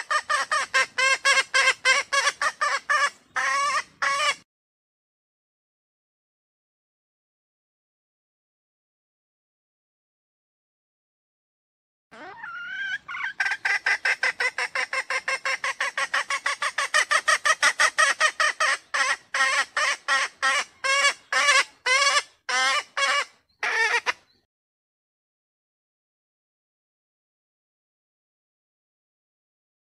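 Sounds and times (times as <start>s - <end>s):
hen calling: 0.0s - 4.4s, 12.2s - 24.4s.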